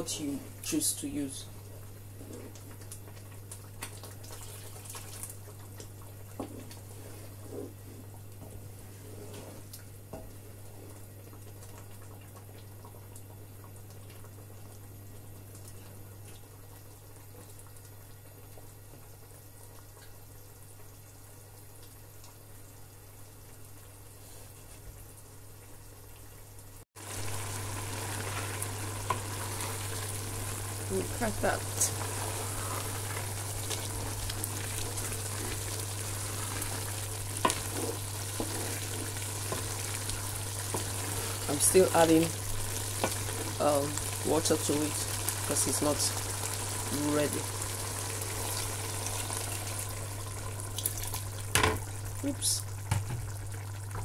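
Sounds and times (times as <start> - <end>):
food sizzling: 0.0 - 23.3, 26.7 - 54.0
liquid bubbling in pot: 1.5 - 54.0
wooden spoon scraping pot: 6.4 - 9.7, 28.1 - 43.6.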